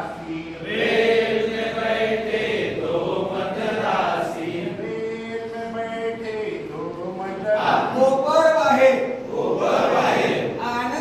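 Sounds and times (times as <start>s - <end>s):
men singing in unison: 0.0s - 5.5s.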